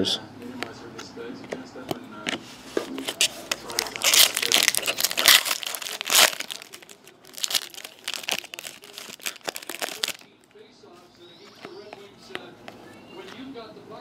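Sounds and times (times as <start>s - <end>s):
foil wrapper crinkling and ripping: 3.0s - 10.3s.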